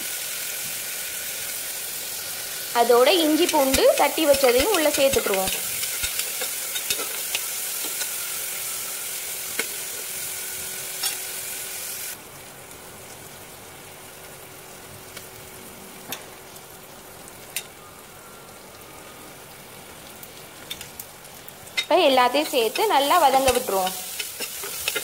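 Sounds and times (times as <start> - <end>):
onions sizzling in hot oil: 0.0 - 25.0
metal spatula stirring: 3.4 - 8.1, 21.8 - 25.0.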